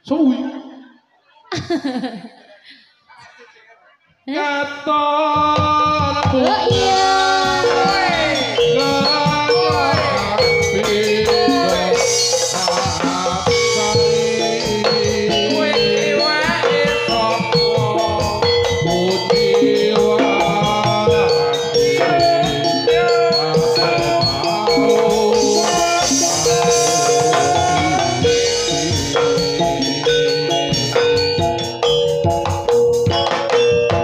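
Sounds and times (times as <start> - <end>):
fast busy drumming: 5.4 - 34.0
gamelan ensemble music: 6.5 - 34.0
sliding wavering melodic notes: 6.7 - 33.9.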